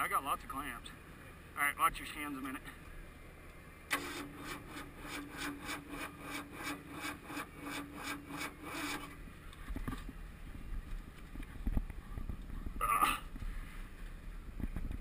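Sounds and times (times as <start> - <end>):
engine cranking without starting: 3.9 - 9.2.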